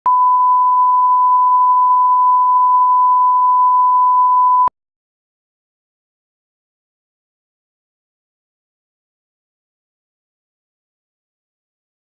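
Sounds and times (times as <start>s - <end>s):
pure test tone beep: 0.1s - 4.7s.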